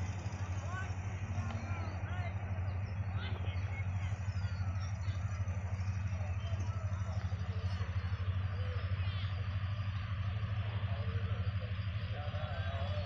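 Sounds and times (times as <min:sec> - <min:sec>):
diesel locomotive engine idling: 0:00.0 - 0:13.0
distant voices of people and children: 0:00.0 - 0:13.0.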